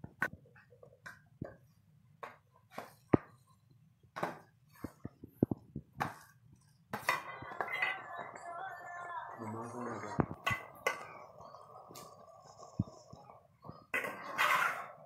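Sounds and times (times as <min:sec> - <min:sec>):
metal spoon scraping steel tray: 0:13.9 - 0:15.0.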